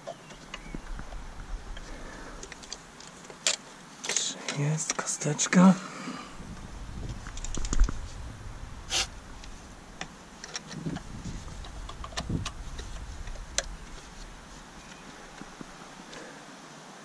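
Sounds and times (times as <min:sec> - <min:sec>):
brief rustling hiss: 0:08.9 - 0:09.2.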